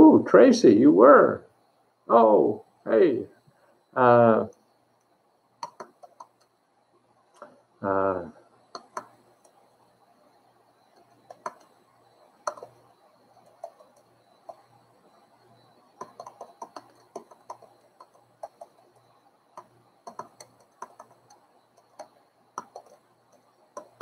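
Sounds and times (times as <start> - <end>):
computer keyboard typing: 4.4 - 6.6, 8.7 - 10.0, 10.8 - 24.0.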